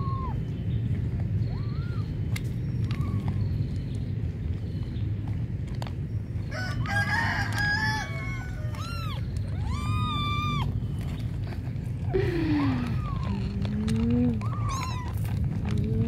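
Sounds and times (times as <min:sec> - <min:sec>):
low background rumble: 0:00.0 - 0:16.0
rooster crowing: 0:06.5 - 0:09.0.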